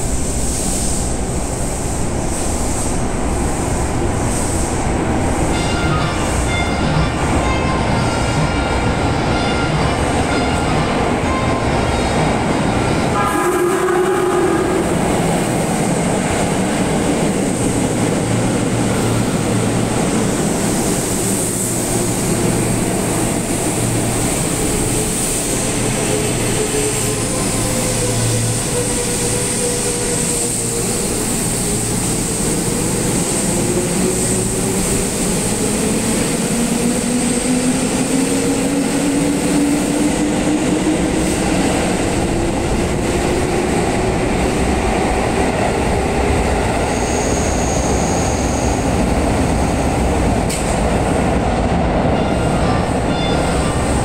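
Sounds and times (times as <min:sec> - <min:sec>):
train rumbling to a stop: 0:00.0 - 0:54.0
train horn blast: 0:05.5 - 0:08.6, 0:09.2 - 0:10.9, 0:13.1 - 0:15.2.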